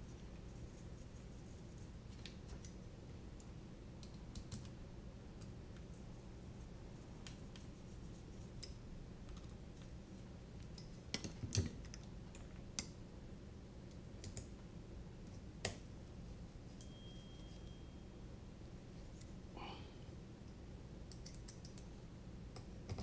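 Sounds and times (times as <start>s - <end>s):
low steady hum: 0.0s - 23.0s
small parts clicking and tapping: 10.6s - 13.0s, 20.5s - 21.9s.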